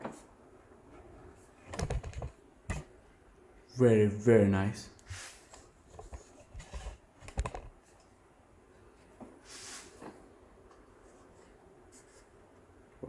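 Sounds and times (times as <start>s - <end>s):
model handling clicks and knocks: 1.7s - 2.9s, 5.9s - 7.8s.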